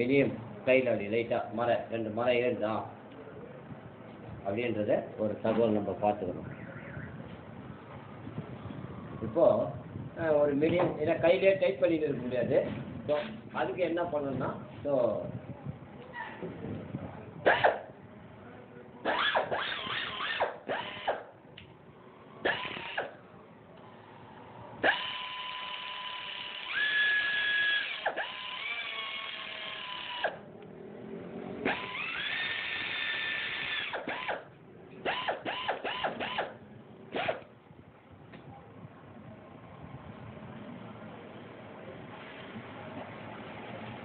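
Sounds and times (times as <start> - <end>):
electric drill motor whining: 19.0 - 21.3, 22.4 - 23.2, 24.8 - 30.5, 31.6 - 37.5.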